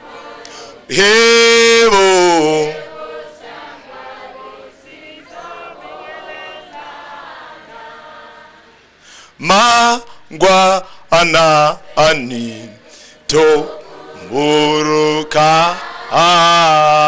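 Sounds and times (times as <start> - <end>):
loud solo singing voice: 0.0 - 3.6, 9.4 - 17.0
congregation singing a hymn: 0.0 - 17.0.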